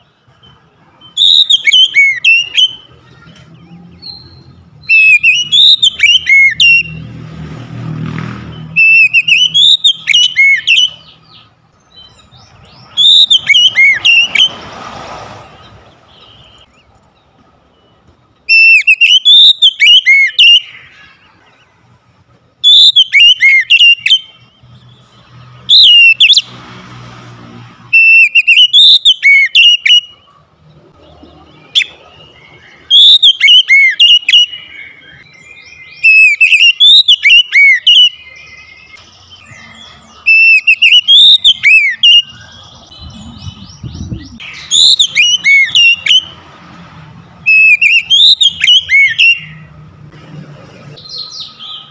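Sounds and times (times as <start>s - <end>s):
bird singing whistled song: 0.3s - 7.1s, 8.5s - 14.6s, 17.7s - 21.3s, 22.6s - 26.5s, 27.9s - 30.3s, 31.0s - 46.4s, 47.4s - 49.7s.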